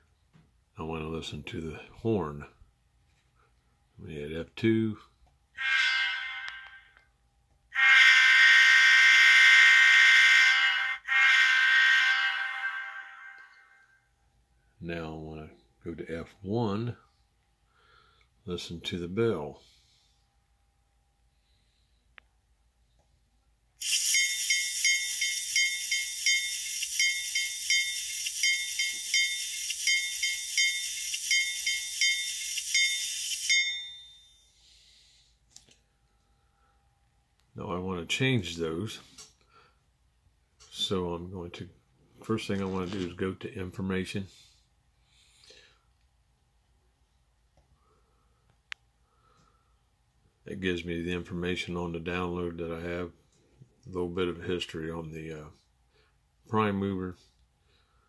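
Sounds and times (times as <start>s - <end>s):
locomotive air horn through small speaker: 5.6s - 7.0s, 7.8s - 13.6s.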